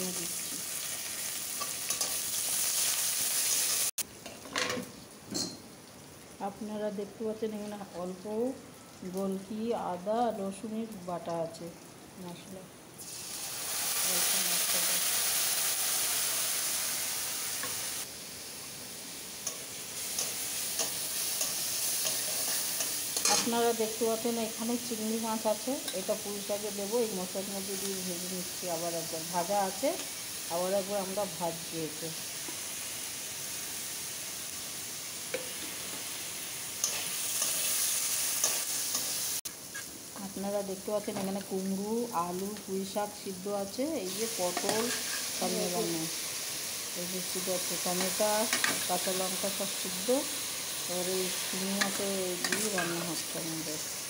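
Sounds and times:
paste sizzling in hot oil: 0:00.0 - 0:04.0, 0:13.0 - 0:54.0
metal spatula scraping a pan: 0:44.5 - 0:45.4.

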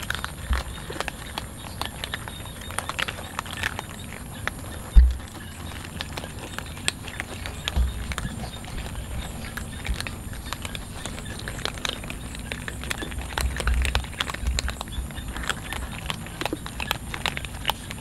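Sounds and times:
cats crunching dry kibble: 0:00.0 - 0:18.0
low thumps: 0:05.0 - 0:05.3.

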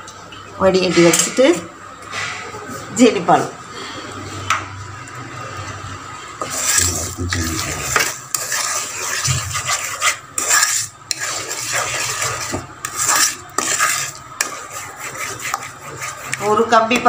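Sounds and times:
wooden spatula scraping a pot: 0:06.4 - 0:17.0.

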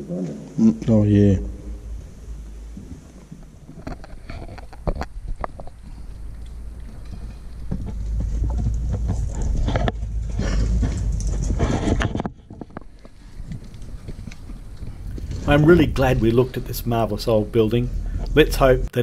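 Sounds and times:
footsteps crunching on gravel: 0:02.7 - 0:17.6
wind rumbling on microphone: 0:03.8 - 0:18.4.

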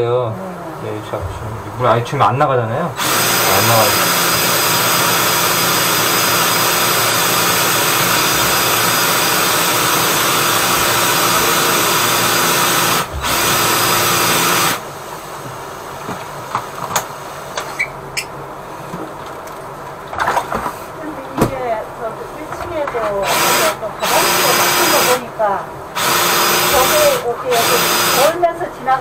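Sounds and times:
drain-cleaning machine running: 0:03.0 - 0:15.3, 0:23.2 - 0:25.3, 0:25.9 - 0:28.4.

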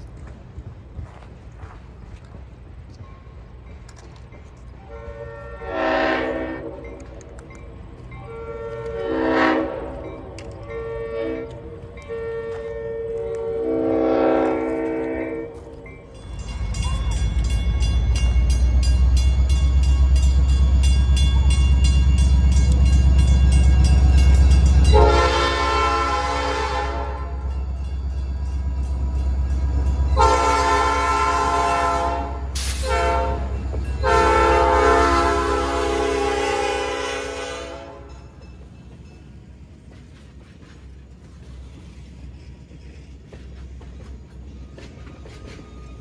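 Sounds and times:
locomotive engine rumble: 0:00.0 - 0:46.0
locomotive horn blasts: 0:04.8 - 0:06.8, 0:08.2 - 0:15.7, 0:24.8 - 0:27.5, 0:30.1 - 0:38.2.

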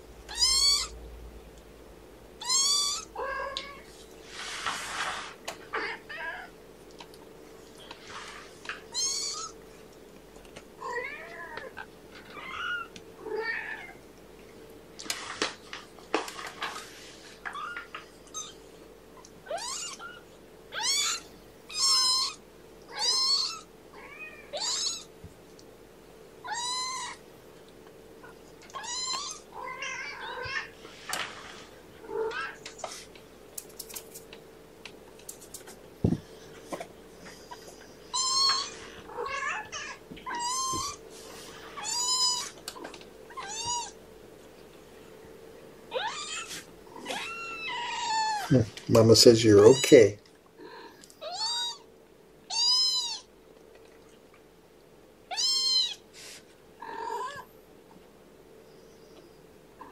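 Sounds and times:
kittens mewing: 0:00.3 - 0:01.0, 0:02.4 - 0:03.8, 0:08.8 - 0:09.6, 0:19.2 - 0:25.1, 0:26.4 - 0:27.2, 0:28.2 - 0:30.8, 0:32.0 - 0:33.1, 0:37.2 - 0:41.0, 0:41.7 - 0:44.0, 0:45.9 - 0:48.6, 0:50.6 - 0:51.9, 0:56.8 - 0:57.5.

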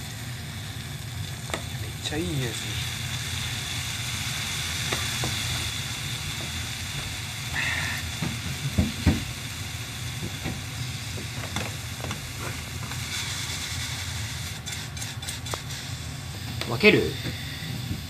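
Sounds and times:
gas burner running: 0:00.0 - 0:18.0
noodles sizzling in a pan: 0:00.0 - 0:18.0
sharp knocks: 0:08.2 - 0:09.3.

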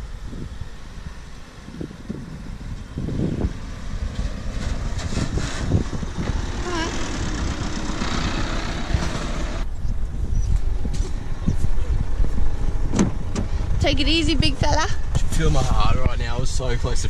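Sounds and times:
wind rumble on microphone: 0:00.0 - 0:17.0
vehicle driving past on sand: 0:01.6 - 0:09.7.

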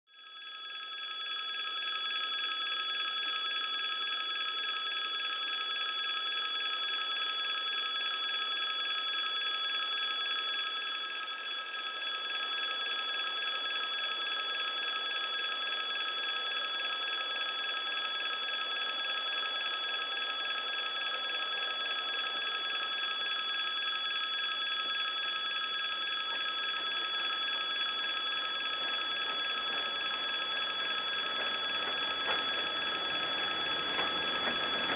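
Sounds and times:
level crossing bell ringing: 0:12.0 - 0:34.9
faint train rumble: 0:29.2 - 0:34.9.

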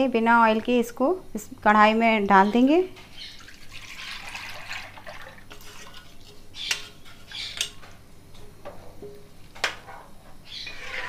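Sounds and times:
batter pouring: 0:03.4 - 0:06.0.

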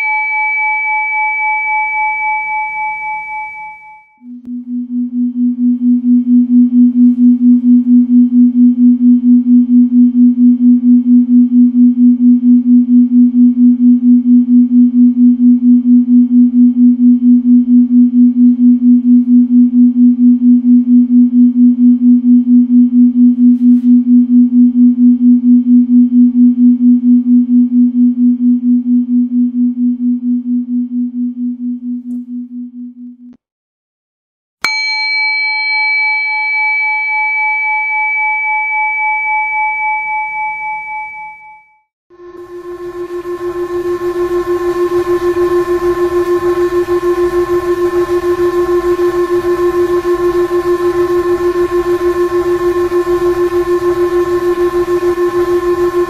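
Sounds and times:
pulsing low electronic tone: 0:04.2 - 0:33.3, 0:42.2 - 0:56.0.

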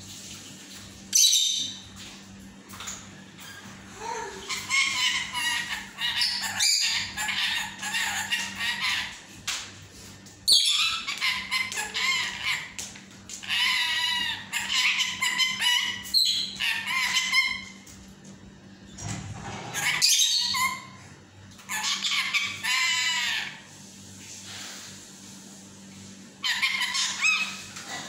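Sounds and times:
parakeet chattering and squawking: 0:04.0 - 0:09.4, 0:10.5 - 0:17.8, 0:19.7 - 0:21.0, 0:21.6 - 0:23.6, 0:26.4 - 0:28.0.

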